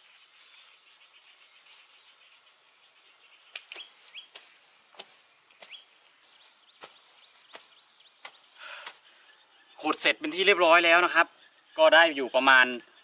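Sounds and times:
insect trill: 0.0 - 13.0
short bird chirps: 3.4 - 4.5, 5.1 - 9.8
digging tool striking ground: 3.6 - 6.0, 6.8 - 9.0.

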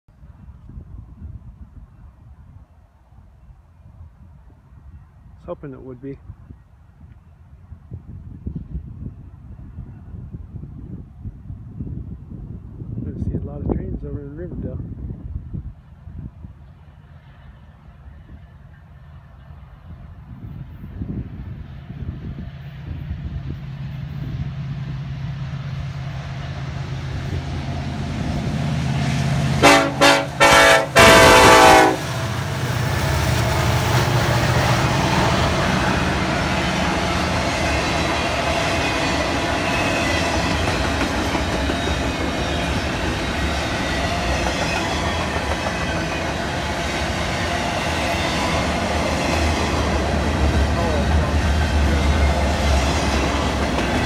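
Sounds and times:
train wheels rumbling on rail: 6.2 - 54.0
diesel locomotive engine running: 16.7 - 54.0
train horn blasts: 29.2 - 32.2.

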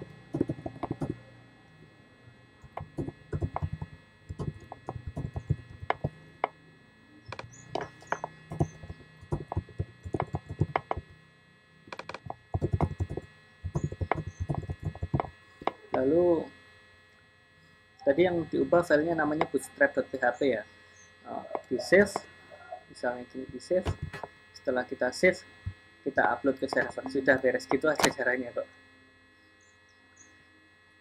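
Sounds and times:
faint steady hum: 0.0 - 31.0
keyboard typing clicks: 0.4 - 1.2, 2.6 - 6.1, 7.3 - 11.1, 11.9 - 15.8, 23.8 - 24.3.

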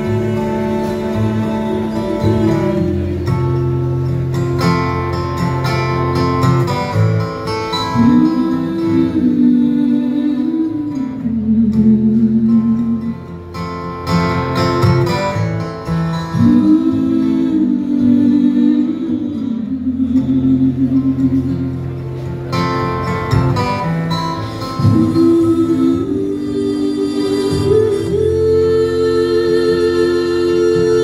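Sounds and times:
woman singing: 0.0 - 3.3, 7.9 - 13.3, 16.3 - 21.7, 24.8 - 31.0
acoustic guitar strummed: 0.0 - 31.0.

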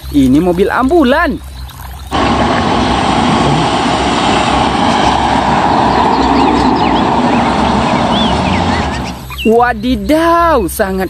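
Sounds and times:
van engine and road noise: 2.1 - 9.4.

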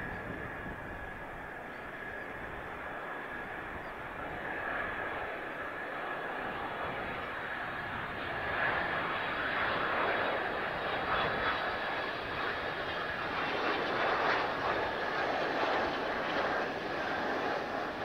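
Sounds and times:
jet engine roar: 0.0 - 18.0.

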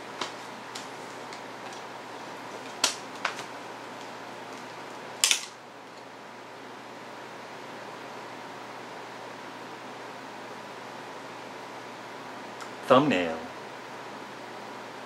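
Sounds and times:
air conditioner hiss: 0.0 - 15.0
cd case clicking: 2.5 - 5.6.

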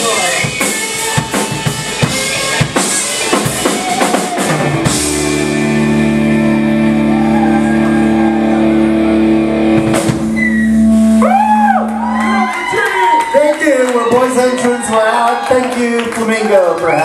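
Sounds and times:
rock band ringing chord: 0.0 - 12.6.

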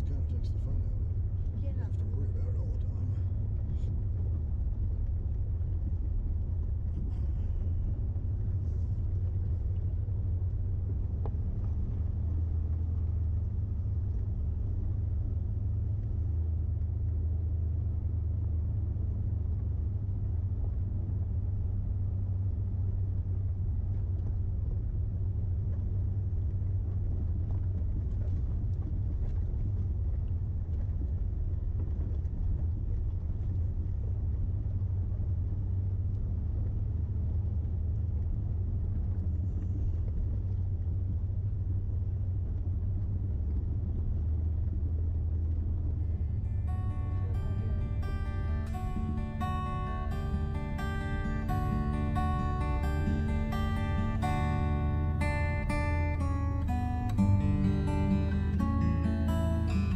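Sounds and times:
vehicle engine rumbling: 0.0 - 59.9.

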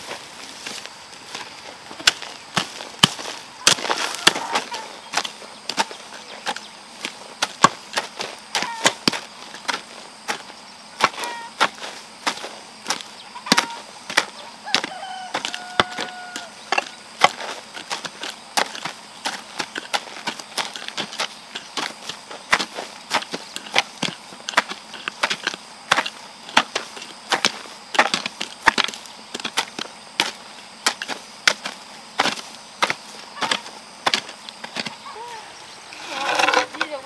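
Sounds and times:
hoes chopping into soil: 0.1 - 37.0.

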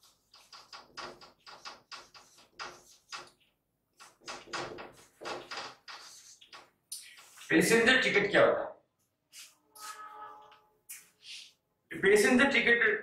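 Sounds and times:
marker writing on whiteboard: 0.0 - 7.8, 9.0 - 11.6.

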